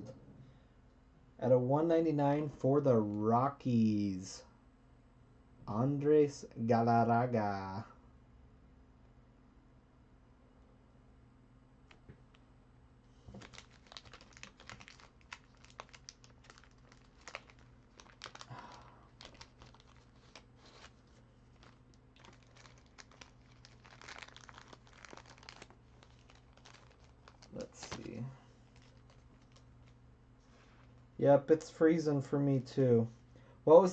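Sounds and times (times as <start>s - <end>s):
faint steady hum: 0.0s - 33.9s
plastic sleeves crinkling: 13.1s - 31.8s.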